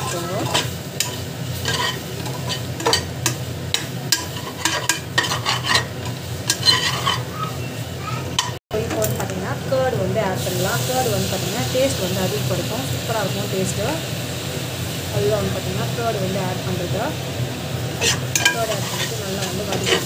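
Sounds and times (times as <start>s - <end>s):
metal spatula scraping a pot: 0.0s - 7.5s, 18.0s - 20.0s
light frying sizzle: 0.0s - 20.0s.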